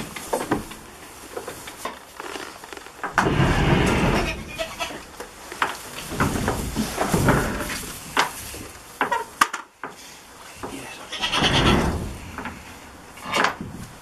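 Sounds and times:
goats bleating: 0:04.1 - 0:05.1, 0:11.1 - 0:11.8.

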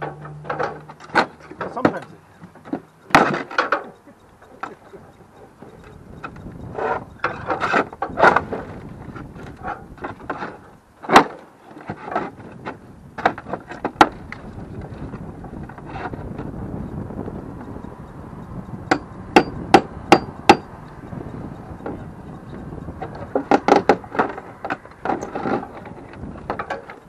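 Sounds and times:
sheet metal scraping and crinkling: 0:23.0 - 0:27.0.

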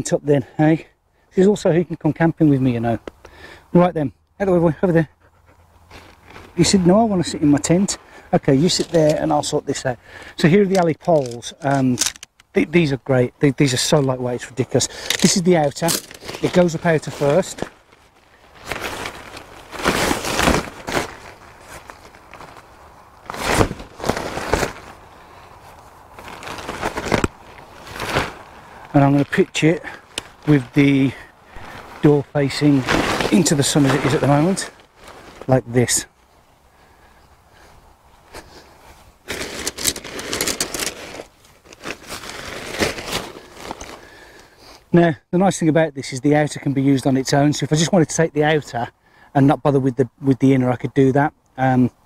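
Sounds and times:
tent fabric rustling and crinkling: 0:05.8 - 0:36.4, 0:37.6 - 0:44.8.

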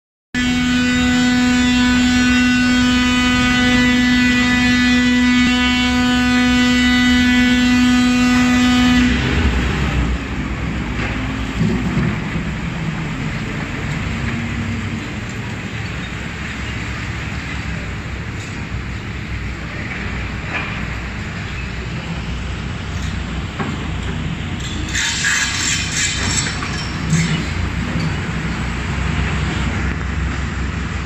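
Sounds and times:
loud steady pitched tone: 0:00.4 - 0:10.4
heavy machinery diesel engines: 0:00.4 - 0:31.0.

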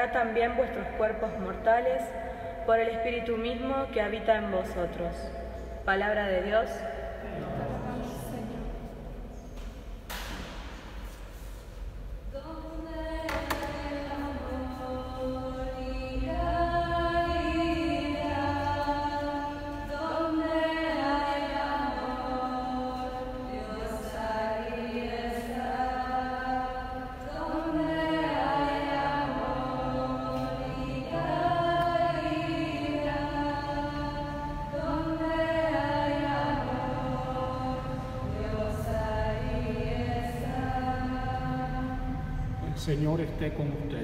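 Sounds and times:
voices singing slow chant: 0:06.9 - 0:10.5, 0:12.3 - 0:43.2.

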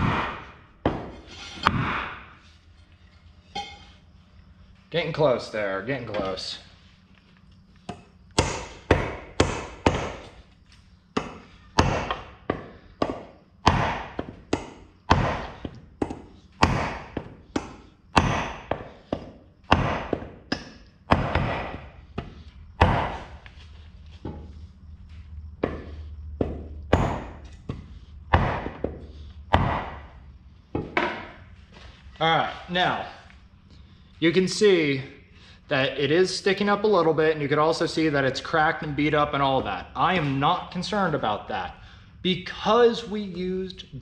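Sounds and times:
hammer striking wooden wedge: 0:00.0 - 0:02.4, 0:07.9 - 0:10.3, 0:11.2 - 0:23.4, 0:25.6 - 0:30.1, 0:30.7 - 0:31.4.

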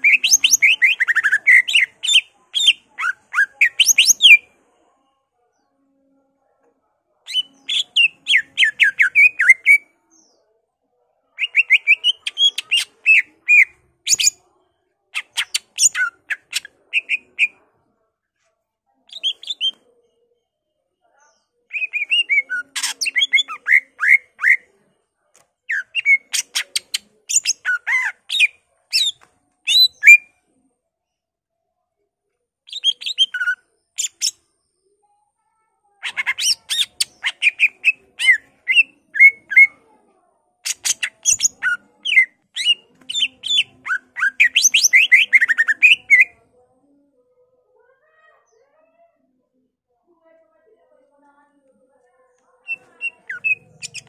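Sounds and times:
bird singing chirps and trills: 0:00.0 - 0:04.4, 0:19.1 - 0:19.8, 0:52.6 - 0:54.0.

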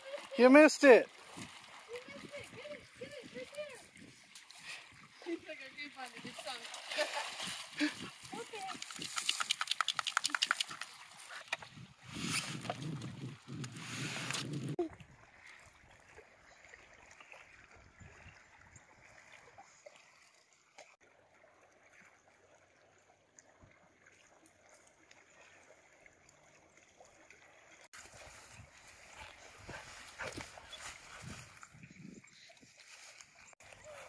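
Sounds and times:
small waves lapping on rocks: 0:00.0 - 0:09.5.

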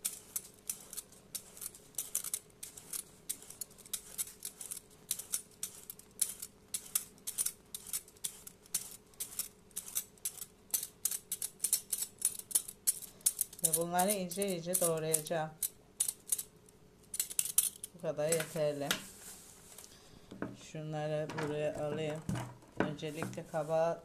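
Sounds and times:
peeler scraping courgette skin: 0:00.0 - 0:12.7.

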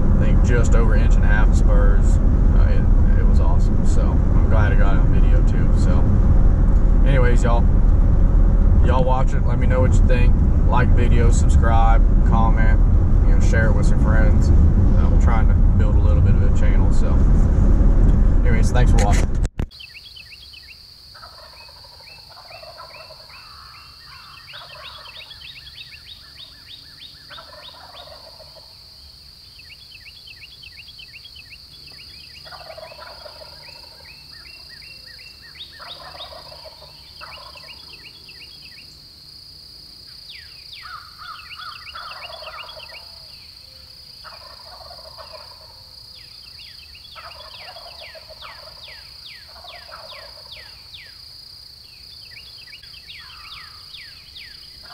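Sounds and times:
turkeys gobbling: 0:21.2 - 0:28.8, 0:31.9 - 0:38.9, 0:40.8 - 0:51.2, 0:52.3 - 0:54.9.

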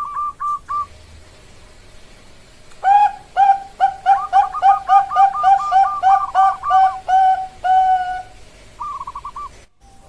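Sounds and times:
dove cooing: 0:02.8 - 0:09.6.

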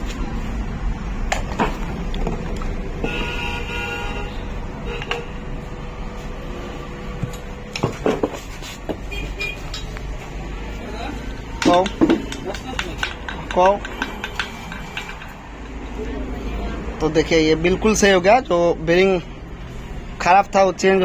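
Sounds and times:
traffic rumble: 0:00.0 - 0:21.0
vehicle horn honking: 0:03.0 - 0:05.6, 0:09.0 - 0:09.8.

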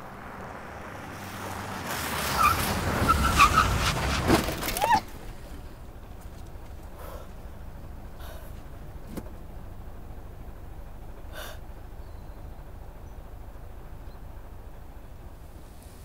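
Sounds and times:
car cabin road rumble: 0:00.0 - 0:16.0
person breathing: 0:07.0 - 0:07.4, 0:08.2 - 0:08.6, 0:11.3 - 0:11.6.

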